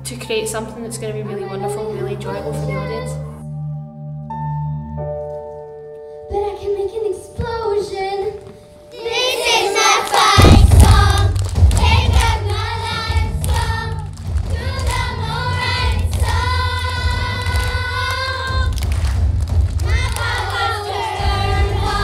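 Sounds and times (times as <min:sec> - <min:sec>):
children singing: 0:09.0 - 0:18.8, 0:19.8 - 0:22.0
backing music with strong bass: 0:10.3 - 0:22.0.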